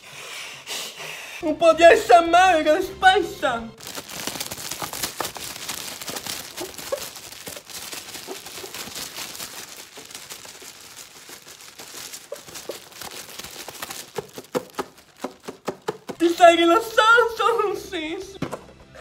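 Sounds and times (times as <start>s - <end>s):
plastic wrapping crinkling: 3.8s - 16.3s.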